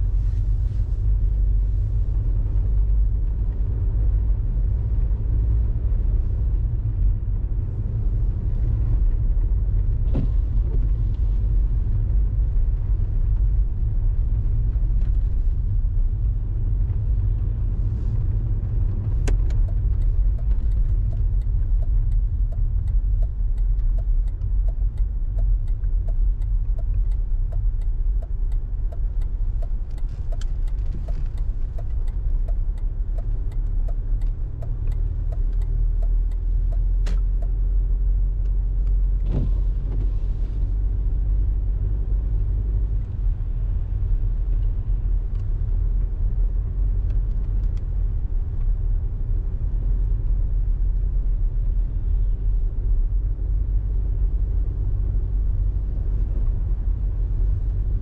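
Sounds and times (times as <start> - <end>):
car engine and tyres rumbling: 0.0 - 58.0
regular ticking: 19.5 - 37.6.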